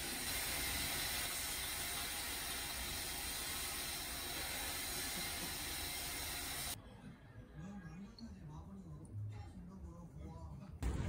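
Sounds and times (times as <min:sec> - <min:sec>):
shower head spraying water: 0:00.0 - 0:06.8.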